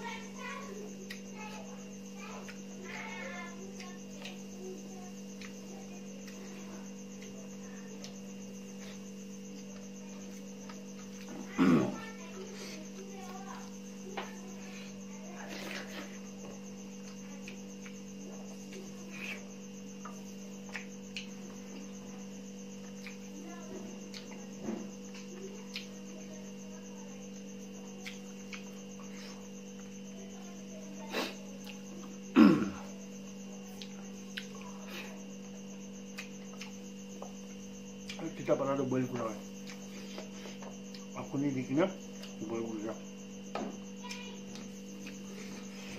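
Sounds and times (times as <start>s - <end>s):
electrical hum: 0.0s - 45.9s
eating by hand clicks: 28.0s - 28.7s
falling throat sound: 32.3s - 32.8s.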